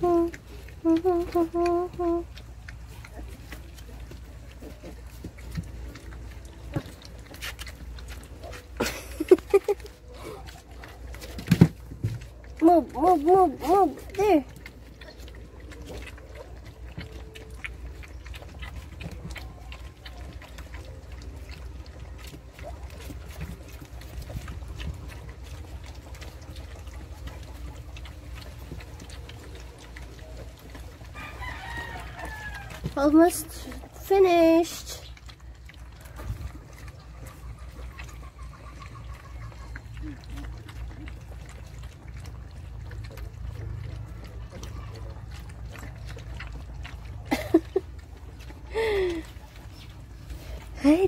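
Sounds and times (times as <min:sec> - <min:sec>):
puppies lapping milk: 0:00.0 - 0:51.0
rooster crowing: 0:31.2 - 0:32.8.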